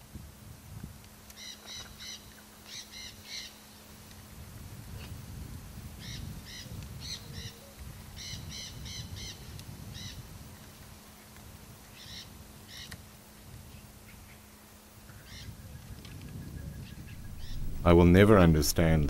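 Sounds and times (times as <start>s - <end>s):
macaws calling: 1.4s - 3.6s, 8.2s - 10.2s, 11.9s - 13.0s, 17.1s - 17.9s
breeze rumble: 16.7s - 19.0s.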